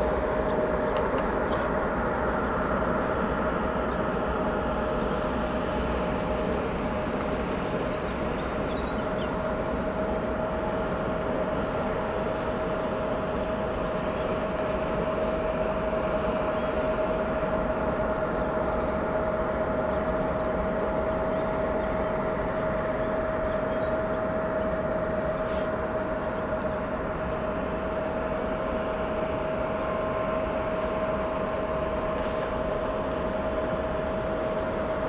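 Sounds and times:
constant mid-pitched hum: 0.0 - 35.0.

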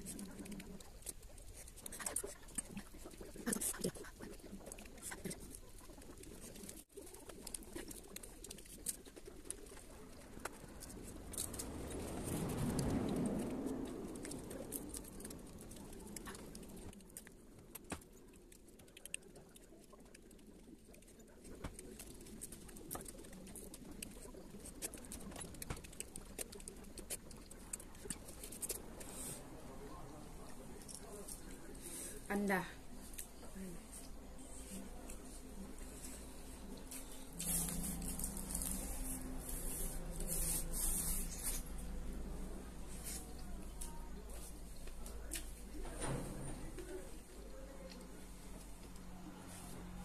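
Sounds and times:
wet chewing clicks and smacks: 0.0 - 31.9.

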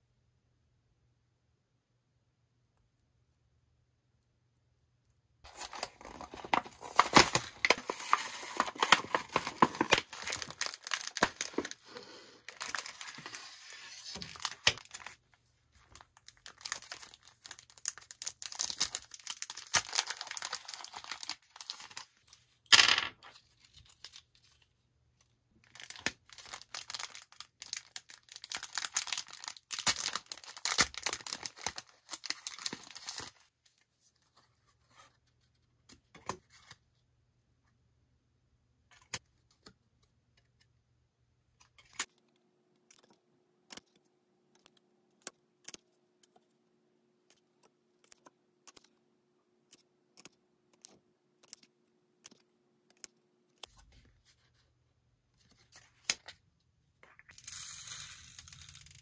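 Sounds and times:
plastic bag ripping: 5.5 - 15.1, 16.4 - 22.0, 25.8 - 33.2
plastic bags crinkling: 5.5 - 15.2, 16.0 - 22.1, 25.6 - 33.3.

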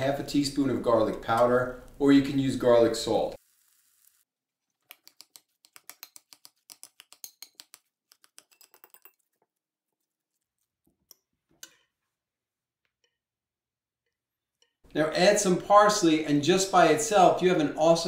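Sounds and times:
fork clicking against glass bowl: 5.0 - 9.2.

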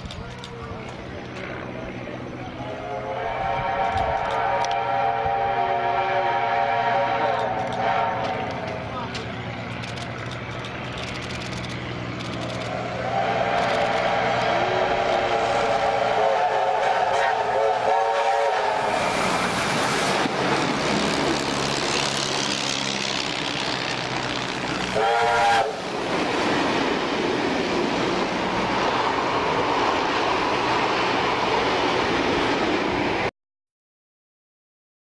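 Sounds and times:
steam locomotive running noise: 0.0 - 33.3
rail clatter: 7.3 - 33.3.

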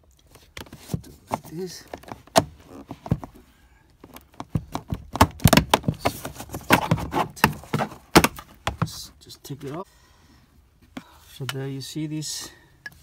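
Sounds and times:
plastic trim clicking and knocking: 4.1 - 8.9.

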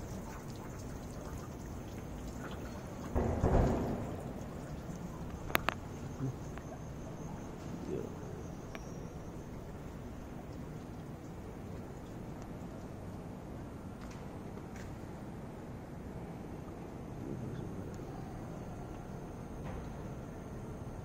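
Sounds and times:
water trickling from fountain: 0.0 - 14.7.

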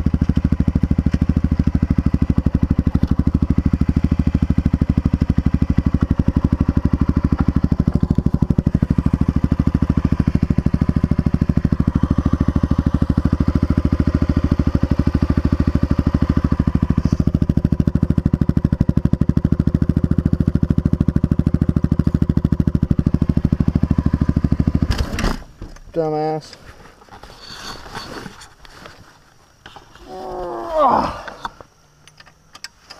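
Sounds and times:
motorcycle engine idling: 0.0 - 24.9.

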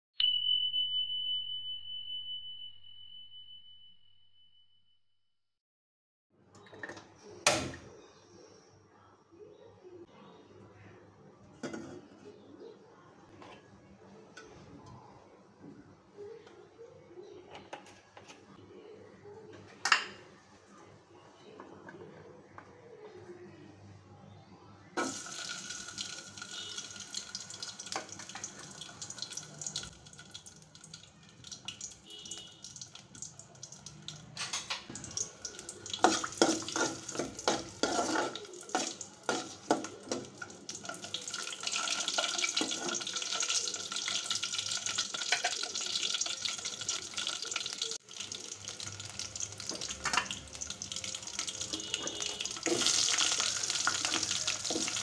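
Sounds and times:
garlic sizzling in hot oil: 25.0 - 34.2, 35.0 - 55.0.

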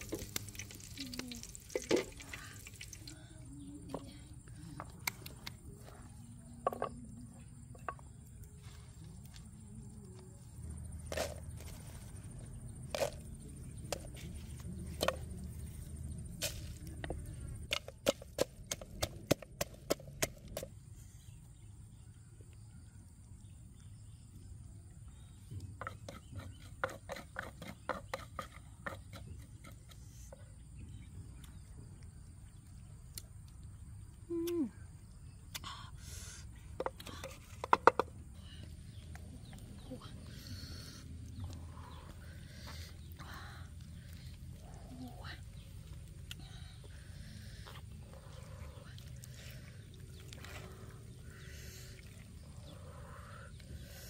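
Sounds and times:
low steady rumble: 0.0 - 19.0
pestle pounding in mortar: 25.8 - 29.9.

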